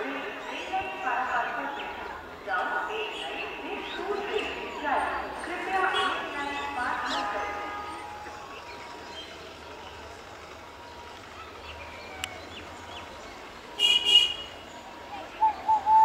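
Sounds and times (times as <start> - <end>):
electric train horn toots: 6.0 - 8.3.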